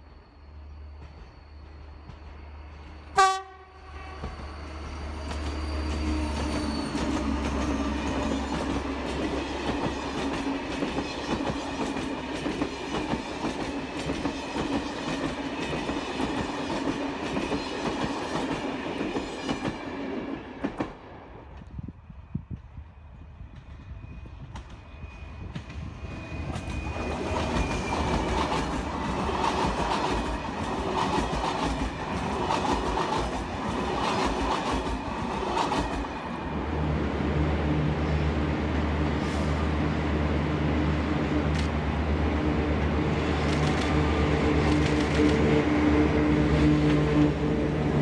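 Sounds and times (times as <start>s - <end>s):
train horn blast: 3.1s - 4.4s.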